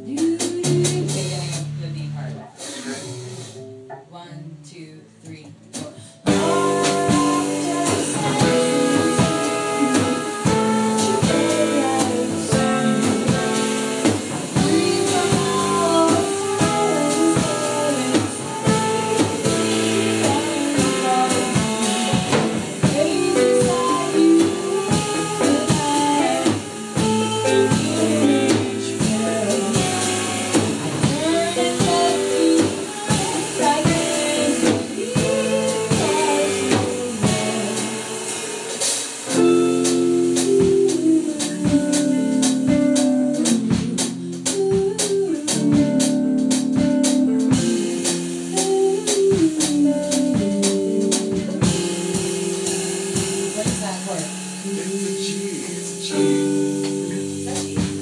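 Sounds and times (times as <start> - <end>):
person singing: 0.0 - 1.7, 5.7 - 58.0
drum kit: 0.0 - 4.3, 5.2 - 58.0
electric guitar: 6.0 - 58.0
long held chords: 6.0 - 58.0.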